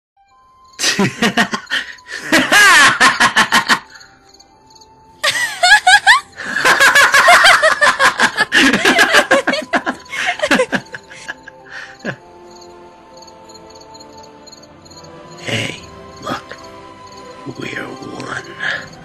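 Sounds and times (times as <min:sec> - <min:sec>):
soft background music: 0:00.2 - 0:19.0
voices laughing: 0:00.8 - 0:04.1, 0:05.2 - 0:12.2.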